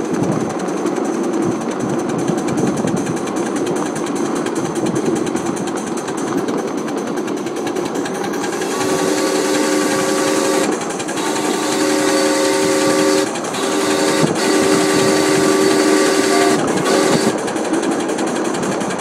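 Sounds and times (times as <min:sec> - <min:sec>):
steam locomotive clatter: 0:00.0 - 0:19.0
steam whistle blasts: 0:08.4 - 0:17.6.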